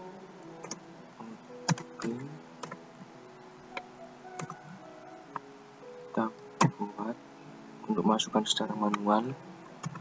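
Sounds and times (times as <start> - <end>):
keyboard key clicks: 1.7 - 2.8.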